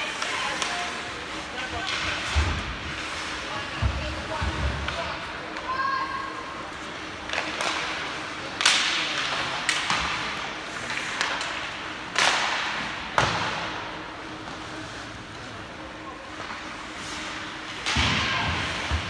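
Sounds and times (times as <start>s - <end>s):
hockey sticks striking puck: 0.0s - 5.8s, 6.8s - 14.6s, 16.3s - 19.0s
puck hitting boards: 10.9s - 13.8s.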